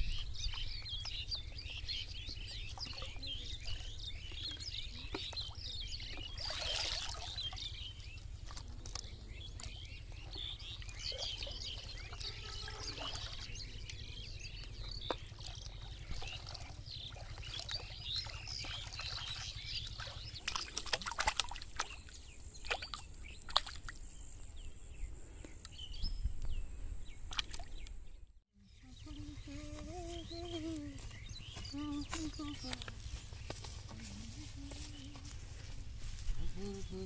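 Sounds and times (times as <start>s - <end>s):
birds chirping: 0.0s - 37.0s
water splashing from wading: 4.5s - 13.6s, 14.8s - 24.0s.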